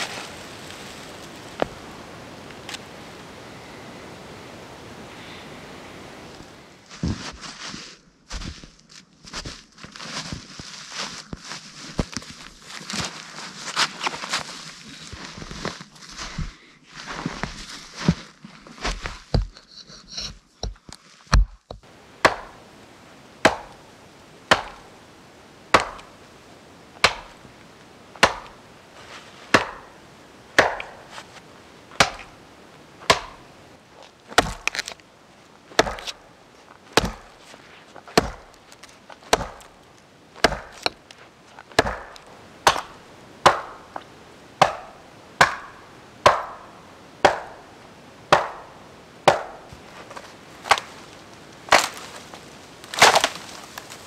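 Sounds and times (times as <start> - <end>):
axe chopping into log: 22.2 - 22.6, 23.4 - 23.8, 24.5 - 24.8, 25.7 - 26.1, 27.0 - 27.4, 28.2 - 28.6, 29.5 - 29.9, 30.6 - 31.0, 32.0 - 32.3, 33.0 - 33.4, 34.3 - 34.9, 35.8 - 36.2, 37.0 - 37.3, 38.2 - 38.5, 39.2 - 39.7, 40.4 - 41.0, 41.7 - 43.8, 44.6 - 46.6, 47.2 - 47.6, 48.3 - 48.7, 49.3 - 49.6, 51.7 - 52.0, 52.9 - 53.5.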